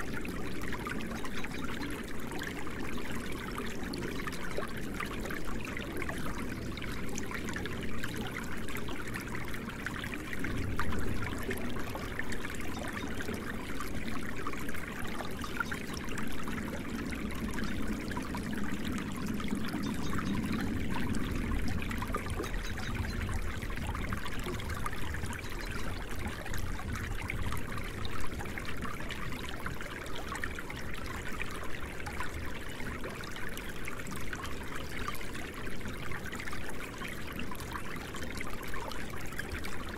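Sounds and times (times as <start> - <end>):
stream trickling: 0.0 - 39.9.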